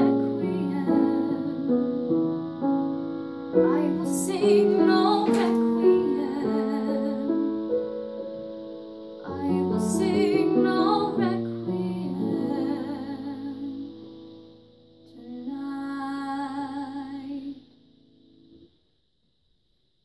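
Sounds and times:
girl singing with vibrato: 0:00.0 - 0:02.0, 0:03.5 - 0:07.7, 0:09.2 - 0:14.0, 0:15.1 - 0:17.6
piano chords: 0:00.0 - 0:18.7.

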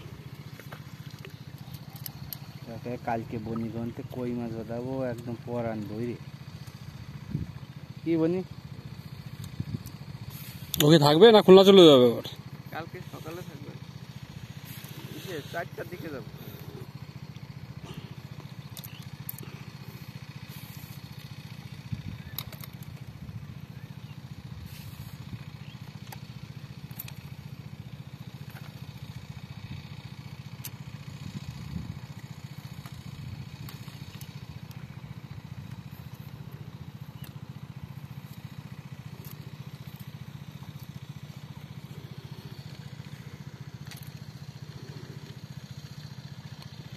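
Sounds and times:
small engine running: 0:00.0 - 0:46.9
faint clicks: 0:37.2 - 0:37.4.

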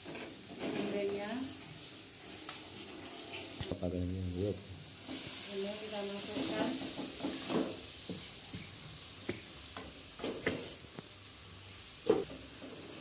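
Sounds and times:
flower sizzling in hot oil: 0:00.0 - 0:13.0
spatula scraping wok: 0:05.0 - 0:08.0.

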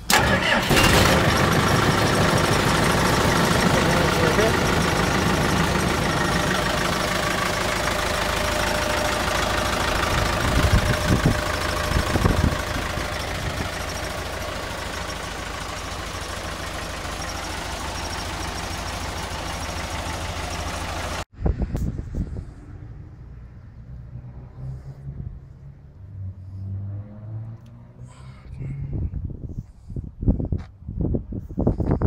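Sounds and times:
diesel engine idling: 0:00.0 - 0:21.3
engine thumps: 0:00.1 - 0:18.0.

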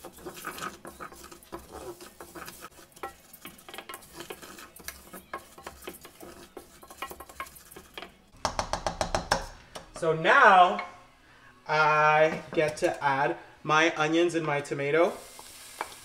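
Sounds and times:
spoon scraping rice in saucepan: 0:00.0 - 0:08.3.

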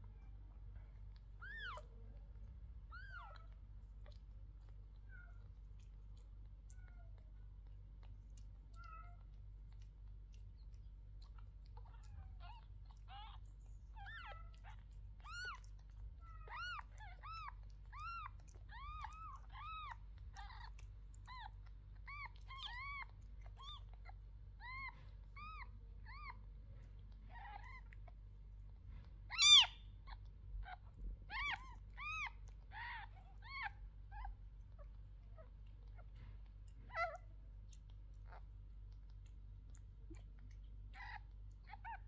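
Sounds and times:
faint low hum: 0:00.0 - 0:42.0
kittens mewing: 0:11.2 - 0:28.0, 0:29.3 - 0:34.4, 0:40.0 - 0:42.0.

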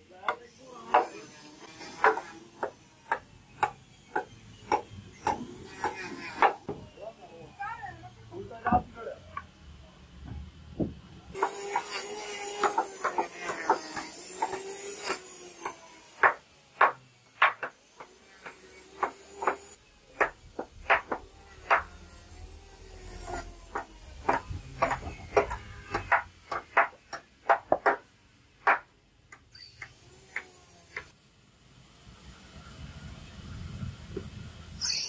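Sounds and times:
hammer knocking nails into wood: 0:01.9 - 0:06.7, 0:10.8 - 0:21.9, 0:23.3 - 0:28.9.

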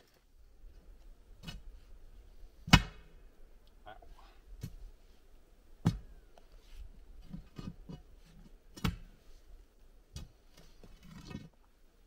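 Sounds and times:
digging bar striking soil and stones: 0:01.4 - 0:01.7, 0:02.6 - 0:03.0, 0:05.8 - 0:06.1, 0:07.2 - 0:09.2.

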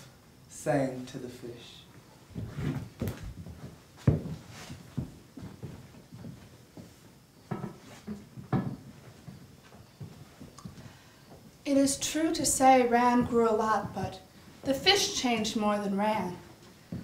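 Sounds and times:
knocks and thumps on wood: 0:02.4 - 0:06.4, 0:07.5 - 0:10.8.

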